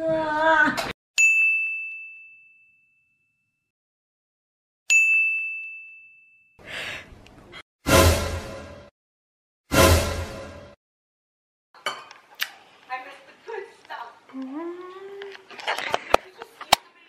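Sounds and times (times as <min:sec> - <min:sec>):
bell-like ding: 0:01.2 - 0:03.5, 0:04.9 - 0:06.6.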